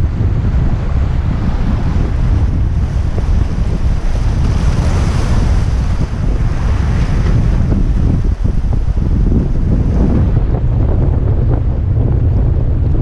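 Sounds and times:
wind buffeting microphone: 0.0 - 13.0
waves breaking on rocks: 1.8 - 10.0.

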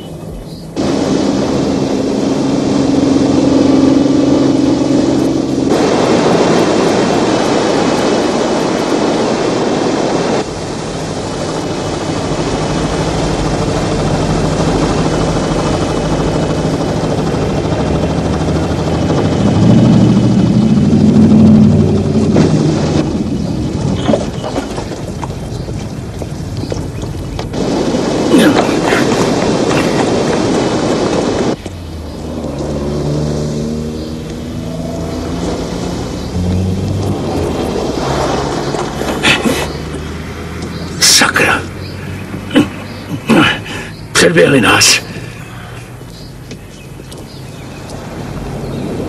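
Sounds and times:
motorboat engine running: 0.0 - 49.0
water rushing around hull: 0.0 - 49.0.

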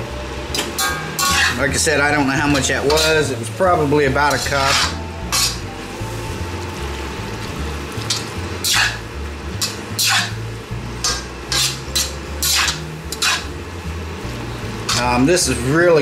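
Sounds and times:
frying sizzle: 0.0 - 16.0
spatula scraping a wok: 0.8 - 1.7, 2.5 - 6.3, 8.1 - 13.6.

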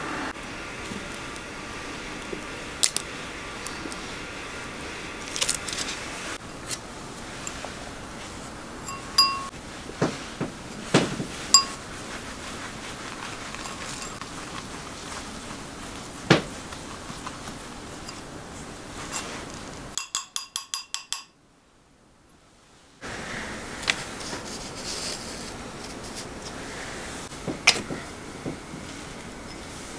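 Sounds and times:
glass bowls clinking: 8.8 - 9.5, 11.5 - 11.8
faint room hiss: 21.2 - 29.9.

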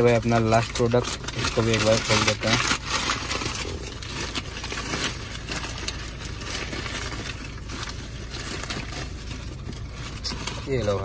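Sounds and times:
paper packaging crinkling: 0.0 - 11.0.

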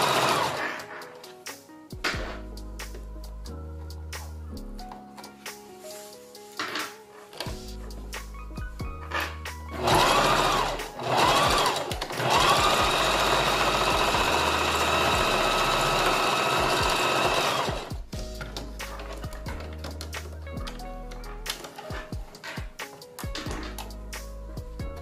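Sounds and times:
sewing machine stitching: 0.0 - 0.8, 9.1 - 17.9
background music held tones: 0.0 - 25.0.

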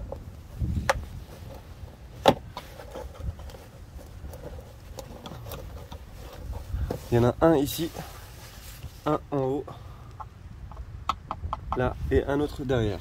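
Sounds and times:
screwdriver scraping plastic: 2.5 - 7.0.

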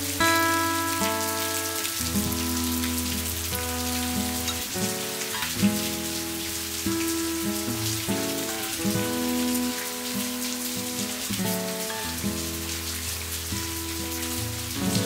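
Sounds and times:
rain falling and dripping: 0.0 - 15.0
soft instrumental music: 0.0 - 15.0.

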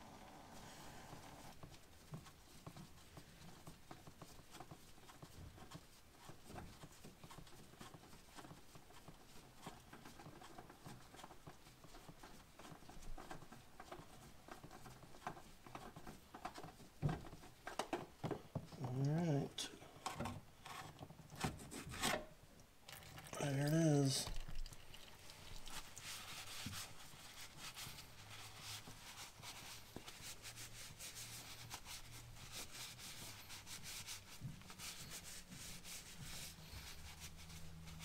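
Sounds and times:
oil filter scraping and clicking: 24.3 - 28.7.

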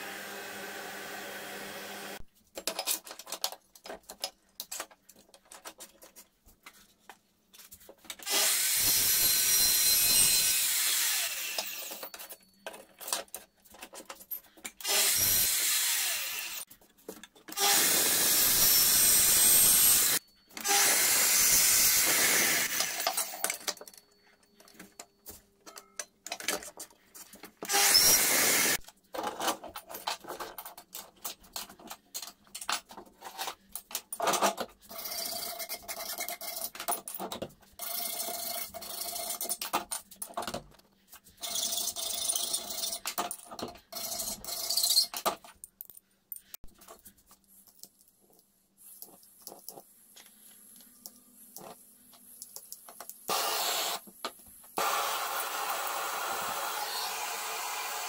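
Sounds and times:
metal saw cutting aluminium: 8.2 - 12.1, 14.8 - 16.7, 17.5 - 23.5, 27.7 - 28.8, 53.3 - 54.0, 54.8 - 58.0.

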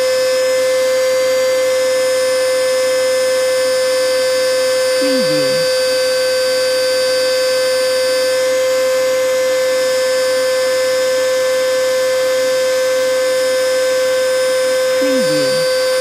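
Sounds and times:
vacuum cleaner running: 6.9 - 16.0.

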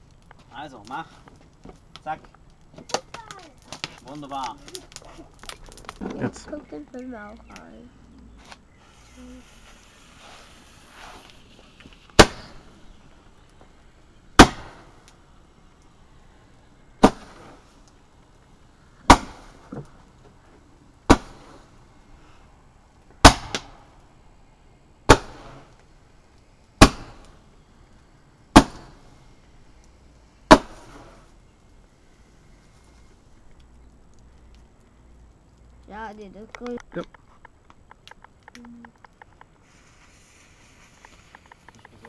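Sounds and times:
faint firework crack: 0.0 - 42.0
firework bangs: 8.8 - 15.3, 16.9 - 17.9, 18.9 - 20.1, 21.0 - 22.0, 23.2 - 24.0, 25.0 - 27.6, 28.5 - 29.6, 30.4 - 31.4.

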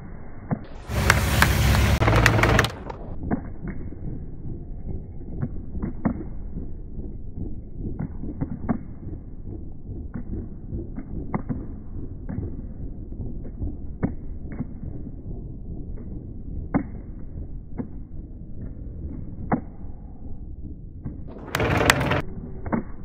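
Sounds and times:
dull clicks and taps: 0.9 - 3.0.

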